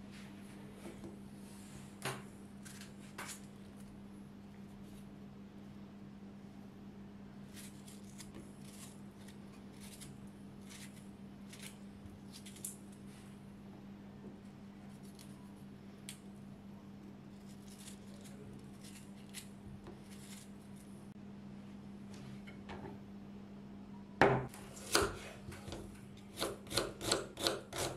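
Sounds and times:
steady low hum: 0:00.0 - 0:27.9
knife slicing tomatoes: 0:24.6 - 0:27.9.

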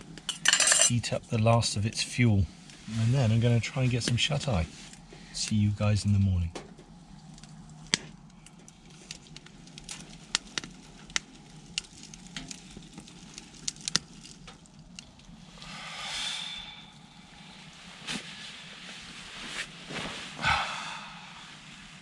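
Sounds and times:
low hiss: 0:00.0 - 0:09.2, 0:13.3 - 0:22.0
wood fire crackling: 0:00.0 - 0:22.0.

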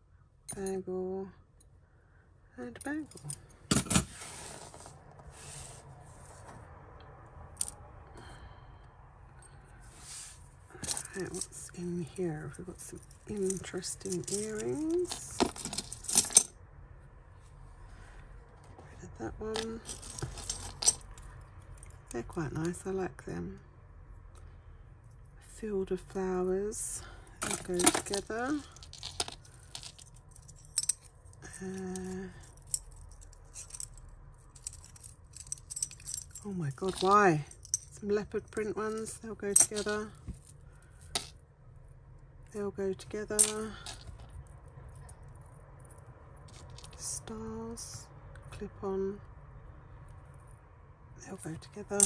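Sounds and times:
jewellery being handled: 0:02.7 - 0:06.5, 0:09.8 - 0:16.5, 0:19.4 - 0:22.9, 0:26.0 - 0:41.4, 0:43.0 - 0:47.2
hands rustling over tabletop: 0:04.1 - 0:06.5.

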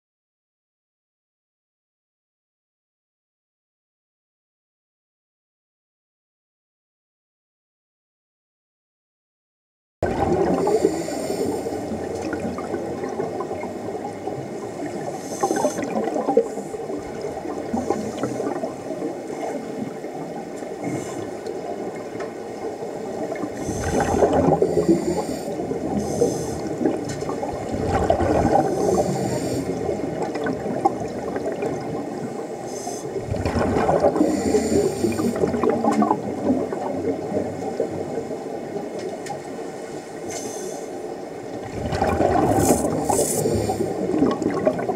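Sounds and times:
exhaled bubbles rushing: 0:10.0 - 0:11.1, 0:11.8 - 0:19.2, 0:23.1 - 0:32.3, 0:33.2 - 0:38.3, 0:41.5 - 0:44.9
diver breathing through regulator: 0:10.6 - 0:11.9, 0:15.1 - 0:16.9, 0:20.8 - 0:21.4, 0:23.6 - 0:26.9, 0:28.6 - 0:30.0, 0:32.6 - 0:33.2, 0:34.2 - 0:35.5, 0:40.0 - 0:41.0, 0:42.4 - 0:44.1.

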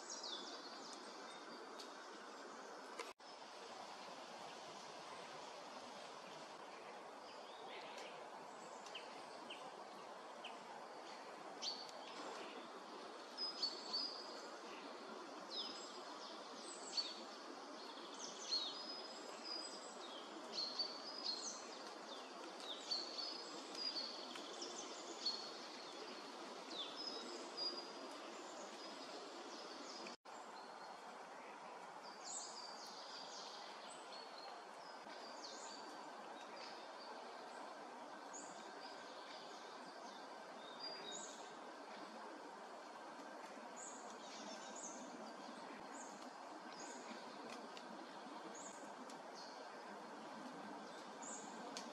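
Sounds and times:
songbirds chirping: 0:00.0 - 0:51.9
steady background hiss: 0:00.0 - 0:51.9.

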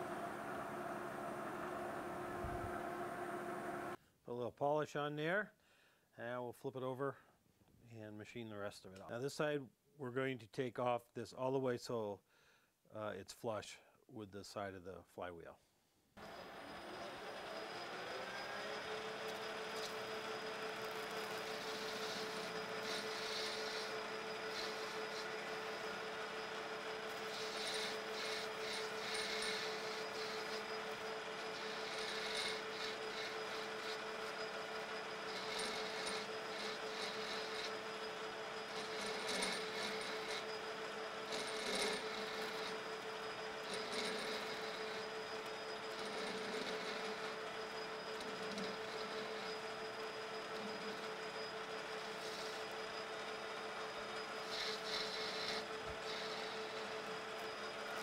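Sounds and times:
lathe whine: 0:00.0 - 0:04.0, 0:16.2 - 0:58.0
metal lathe hum: 0:00.0 - 0:04.0, 0:16.2 - 0:58.0
tool cutting metal hisses: 0:20.8 - 0:40.7, 0:54.2 - 0:57.0.

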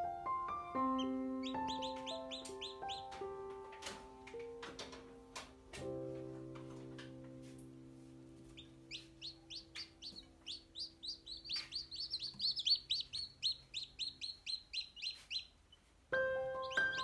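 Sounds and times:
chicks peeping: 0:00.5 - 0:04.2, 0:08.4 - 0:17.0.

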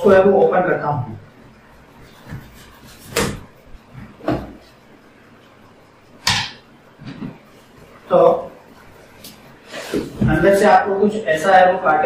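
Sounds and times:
cardboard knocks and scrapes: 0:02.2 - 0:04.7.

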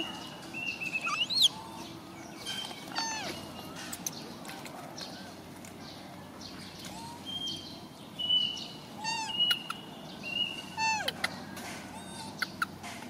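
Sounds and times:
infant monkeys squealing: 0:01.0 - 0:02.0, 0:03.0 - 0:03.4, 0:06.9 - 0:07.3, 0:09.0 - 0:09.8, 0:10.7 - 0:12.7.

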